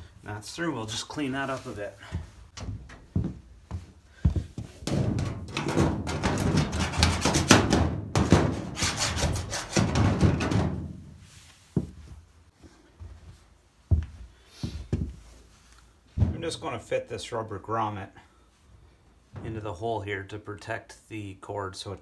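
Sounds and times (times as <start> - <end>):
knock: 4.9 - 8.7, 9.7 - 10.8
file rasping on steel: 8.7 - 9.9.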